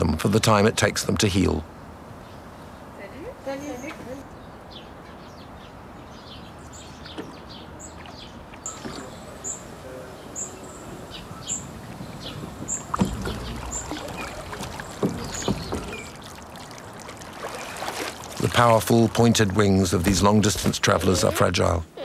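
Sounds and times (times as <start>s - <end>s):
water sloshing in a pool: 7.3s - 20.6s
splashes: 11.5s - 20.8s.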